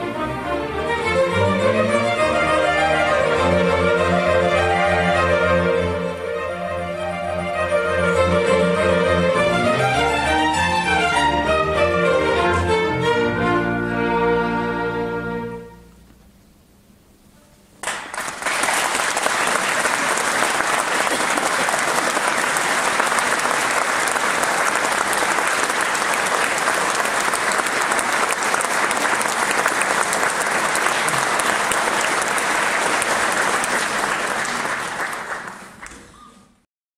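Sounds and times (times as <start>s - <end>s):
audience applauding: 17.8s - 36.6s.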